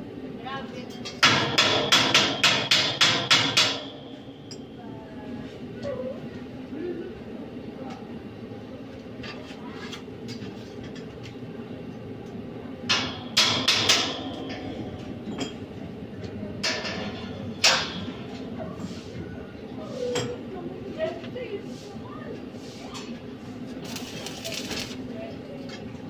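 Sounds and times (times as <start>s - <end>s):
steady low hum: 0.0s - 26.0s
metal clanks on steel bars: 1.0s - 4.7s, 12.9s - 15.6s, 16.6s - 18.1s.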